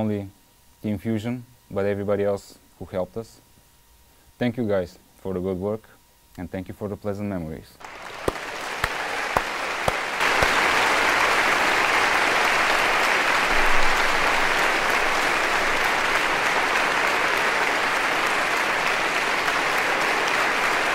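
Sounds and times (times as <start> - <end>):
applause: 7.8 - 20.9.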